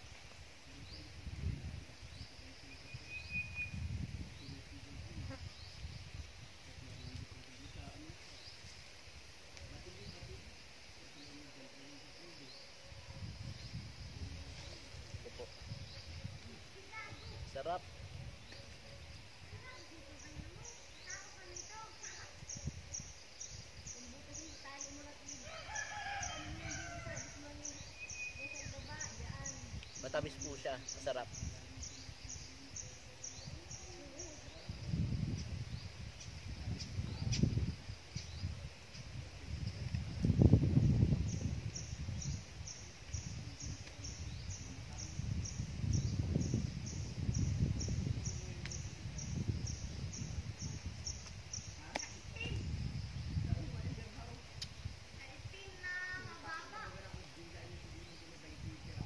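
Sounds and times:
rooster crowing: 25.4s - 27.4s.

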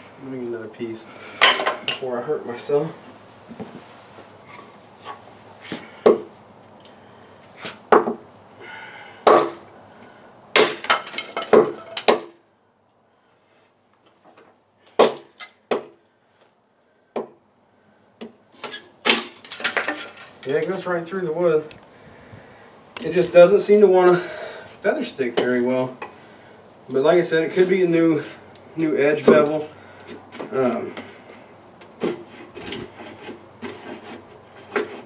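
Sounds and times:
tomahawk chopping wood: 5.7s - 6.3s, 9.2s - 9.7s, 10.6s - 12.4s, 14.9s - 16.0s.

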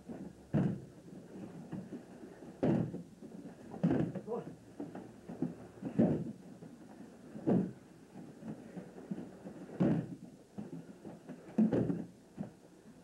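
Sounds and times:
bodies thudding onto mats: 0.0s - 12.6s
footfalls on mat: 0.0s - 12.6s.

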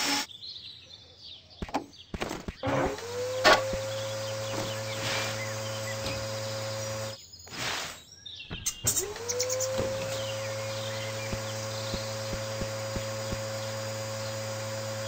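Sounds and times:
faint chirps: 3.3s - 15.0s
low hum: 8.8s - 15.0s.

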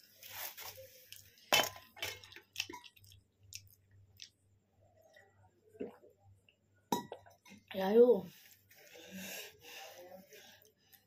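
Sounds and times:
person chewing: 1.1s - 4.4s.

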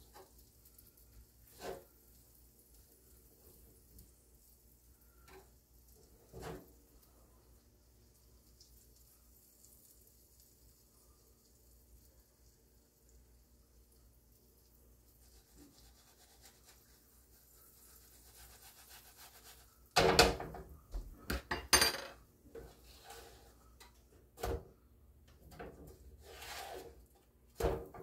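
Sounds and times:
soft rubbing: 15.0s - 19.9s
kitchen clatter: 19.4s - 24.6s.

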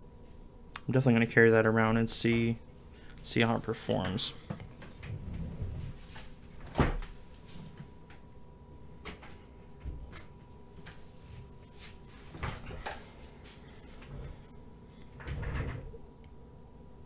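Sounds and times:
soft rustling: 10.8s - 14.5s.

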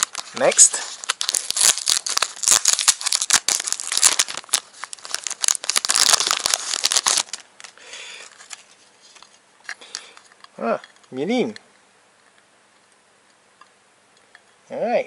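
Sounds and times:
foil wrapper crinkling: 0.0s - 10.4s.

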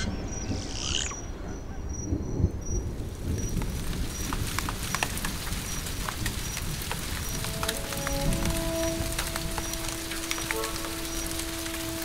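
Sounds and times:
faint high chirp: 0.0s - 2.5s
thunder rumbling: 0.0s - 12.0s
heavy rain: 2.1s - 12.0s
water drips pattering: 3.1s - 12.0s.

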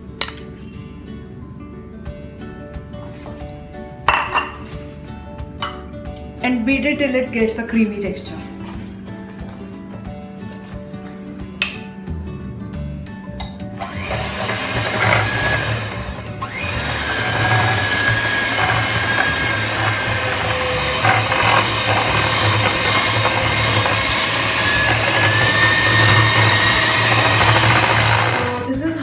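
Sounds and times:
electric mixer whining: 13.8s - 28.8s.

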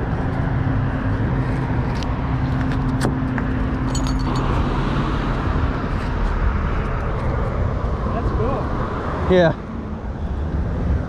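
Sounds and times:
engine hum: 0.0s - 11.0s
road vehicle rumble: 0.0s - 11.0s
light metallic clinks: 3.9s - 4.6s.

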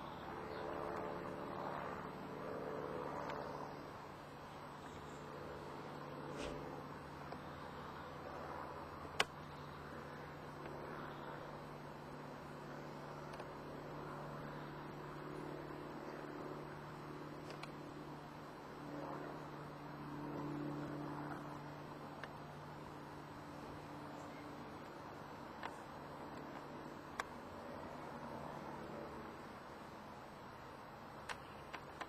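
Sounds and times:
outdoor background noise: 0.0s - 32.0s
steady low hum: 0.0s - 32.0s
sharp click: 9.2s - 9.4s.

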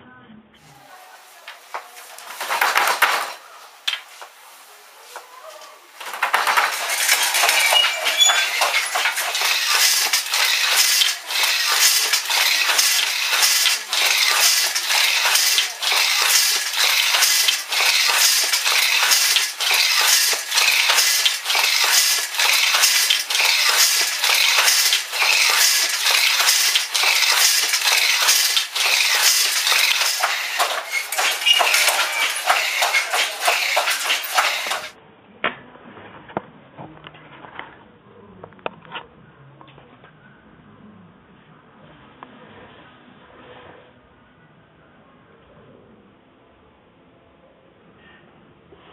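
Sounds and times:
loud clattering and rattling: 1.3s - 35.0s.

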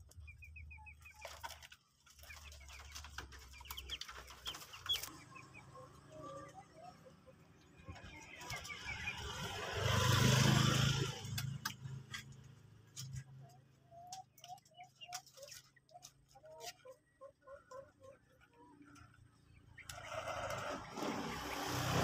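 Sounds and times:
motorcycle passing: 3.6s - 13.3s, 19.8s - 22.0s.

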